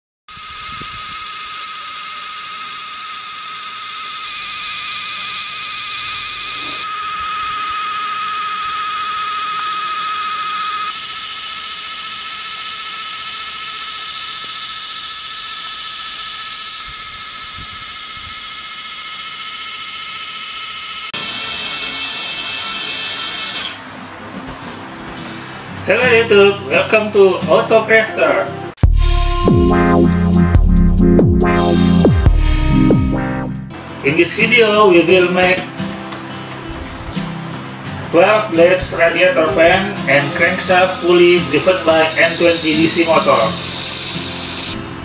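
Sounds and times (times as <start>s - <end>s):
small electric motor whining: 0.3s - 23.9s, 40.0s - 45.0s.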